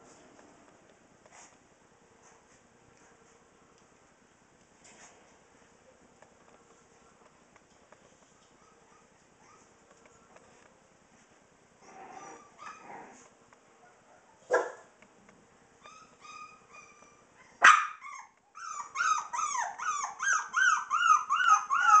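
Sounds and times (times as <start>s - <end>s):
puppy yelp: 8.4s - 9.8s, 11.9s - 13.2s, 15.8s - 22.0s
puppies whining and yipping: 8.4s - 10.4s, 11.8s - 13.3s, 15.8s - 22.0s
faint squeaks: 11.8s - 13.2s.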